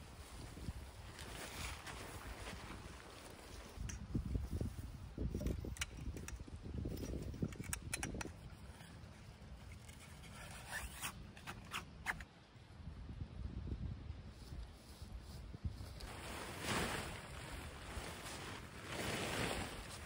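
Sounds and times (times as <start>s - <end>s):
wind rumbling on microphone: 0.0s - 10.6s, 12.7s - 20.0s
tent pole clicks and knocks: 5.3s - 8.9s
fabric scraping and rubbing: 16.0s - 20.0s.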